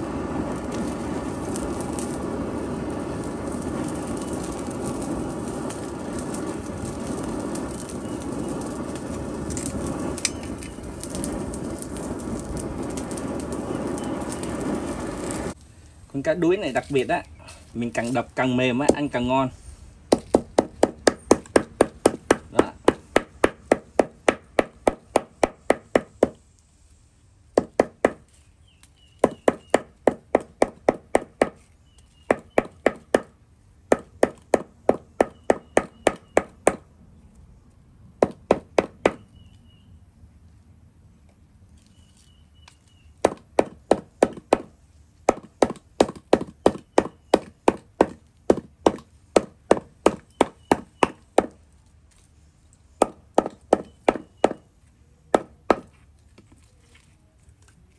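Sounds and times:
hammer pounding on wooden block: 20.1s - 26.4s, 27.6s - 28.2s, 29.2s - 31.6s, 32.3s - 33.3s, 33.9s - 36.8s, 38.2s - 39.2s, 43.2s - 44.7s, 45.3s - 51.6s, 53.0s - 54.6s, 55.3s - 55.9s.

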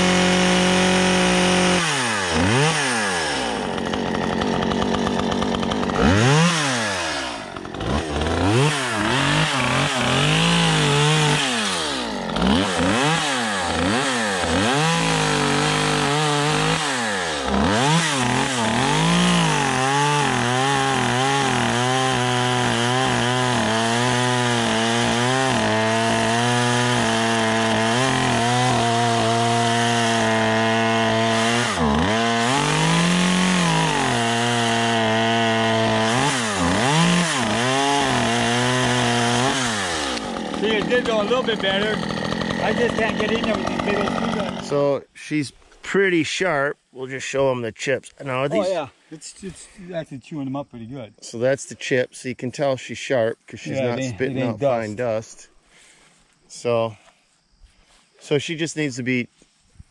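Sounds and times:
chainsaw cutting wood: 0.0s - 44.9s, 48.4s - 48.8s, 53.6s - 56.0s
chainsaw revving: 0.0s - 45.0s, 48.3s - 48.8s, 53.6s - 56.0s.

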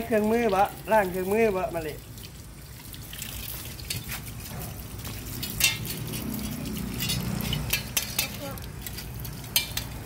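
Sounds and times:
water trickling onto concrete: 0.0s - 10.0s
metal tools clicking: 5.4s - 10.0s.

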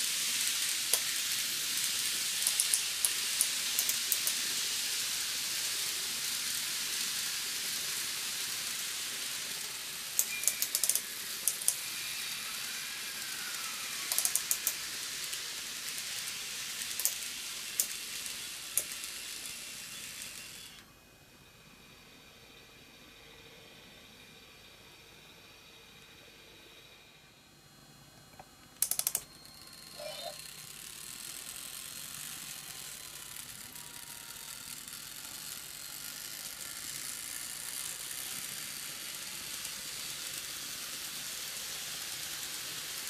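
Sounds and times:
model train wheels hissing: 0.0s - 20.8s, 30.0s - 43.0s.

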